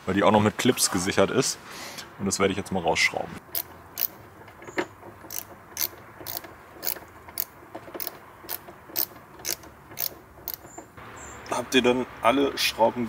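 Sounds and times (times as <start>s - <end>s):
ratchet clicking: 3.5s - 4.2s, 5.2s - 10.8s.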